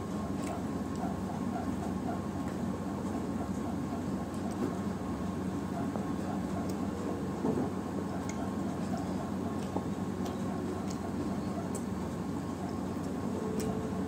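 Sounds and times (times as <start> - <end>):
low hiss and hum: 0.0 - 14.0
chewing and handling food: 5.6 - 14.0.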